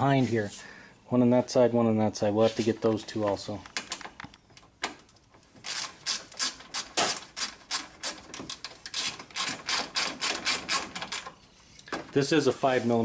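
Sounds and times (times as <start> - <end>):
wrench ratcheting: 5.6 - 11.3.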